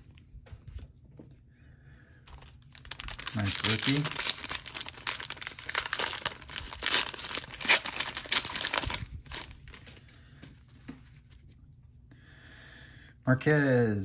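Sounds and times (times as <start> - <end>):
plastic wrapper tearing and crinkling: 2.3 - 9.9.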